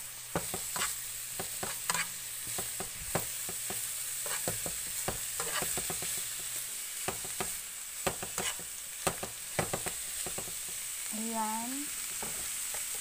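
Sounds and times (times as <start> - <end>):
food sizzling in a frying pan: 0.0 - 13.0
utensil scraping a pan: 0.5 - 2.7, 4.2 - 6.1, 8.2 - 8.7.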